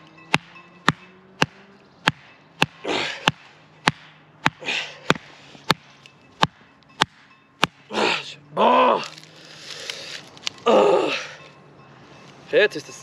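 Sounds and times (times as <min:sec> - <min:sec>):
heavy breathing: 0:02.8 - 0:03.5, 0:04.5 - 0:05.7, 0:09.1 - 0:12.2.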